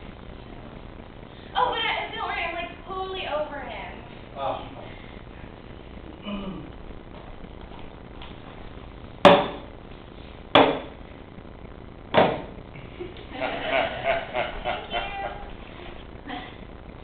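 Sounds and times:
soft voices: 6.1 - 6.8, 12.8 - 16.7.

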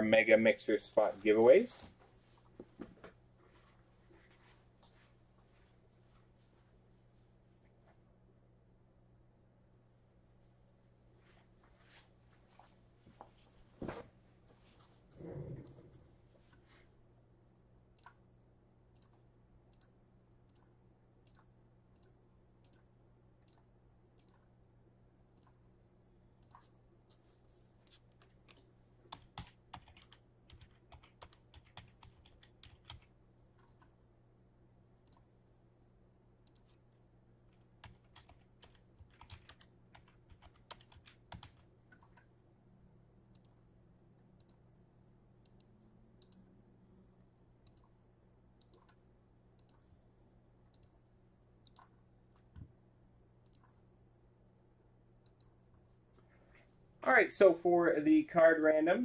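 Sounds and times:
low steady hum: 0.0 - 59.0
typing on a computer keyboard: 28.1 - 33.9, 37.5 - 42.3.

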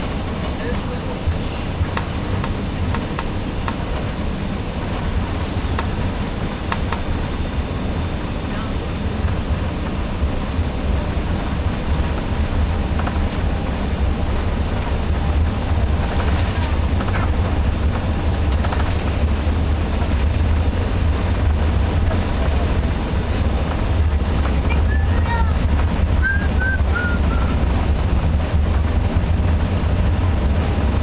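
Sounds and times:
jet engines rumbling at takeoff: 0.0 - 31.0
wheels on runway: 0.0 - 31.0.

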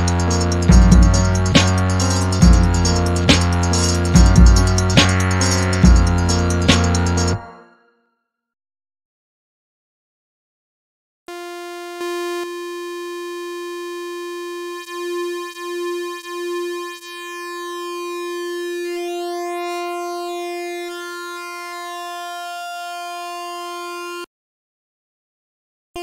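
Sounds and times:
steady synth note: 0.0 - 7.9.

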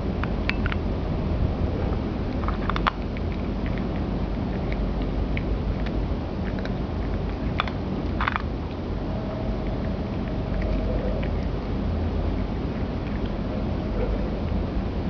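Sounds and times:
low background hum: 0.0 - 15.0
cat crunching dry treats: 2.3 - 8.8, 9.6 - 14.5.

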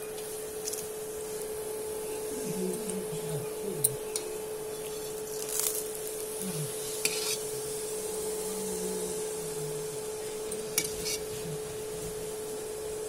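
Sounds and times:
flatbread sizzling in oil: 0.0 - 2.2, 4.1 - 8.4, 10.1 - 13.0
spatula scraping pan: 6.7 - 7.9, 10.2 - 12.2.

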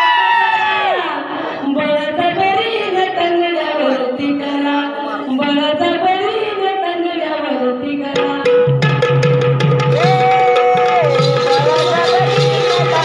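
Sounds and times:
hand drum percussion: 8.1 - 13.0.

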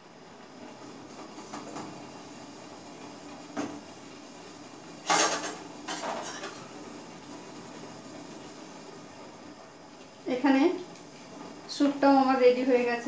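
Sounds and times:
steel cookware clattering: 5.0 - 6.6.

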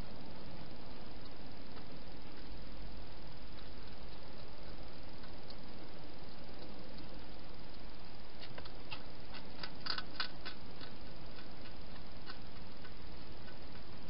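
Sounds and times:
steady hiss: 0.0 - 14.0
hedgehog feeding clicks and crunches: 3.5 - 14.0.

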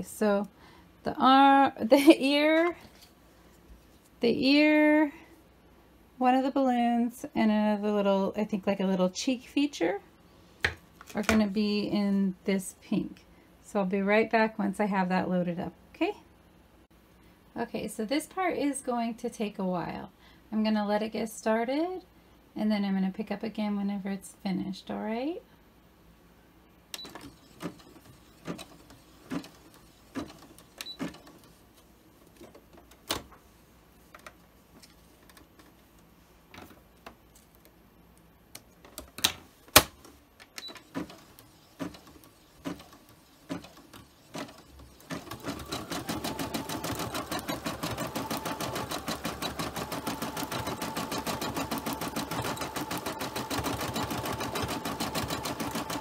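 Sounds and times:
embroidery machine needle rattle: 40.7 - 56.0.

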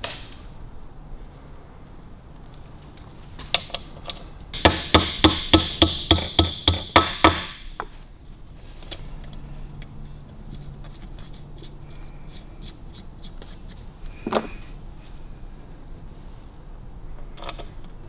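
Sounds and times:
hammer tapping metal stud: 4.6 - 7.9.

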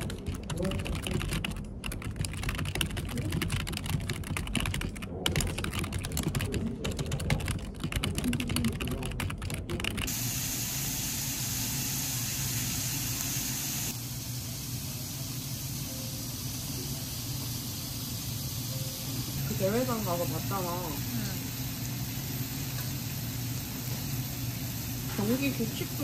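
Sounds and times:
fast typing on keyboard: 0.0 - 10.1
meat sizzling on grill: 10.1 - 26.0.

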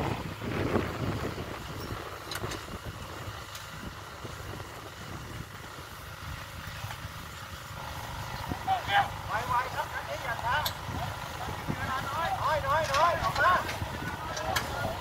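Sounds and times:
wind and surf rumble: 0.0 - 15.0.

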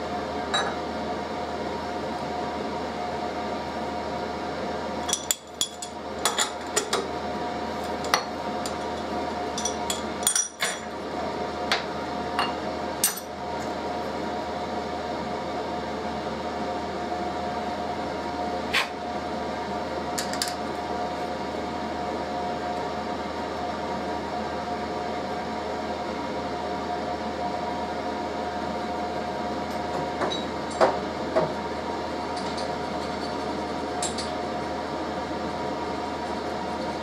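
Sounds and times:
heater hum: 0.0 - 37.0
metal tools clinking on steel table: 9.6 - 10.8.

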